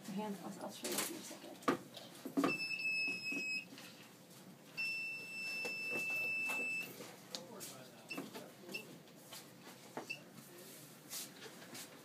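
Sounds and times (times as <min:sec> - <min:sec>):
medical alarm high beeps: 0:02.4 - 0:03.7, 0:04.8 - 0:06.9.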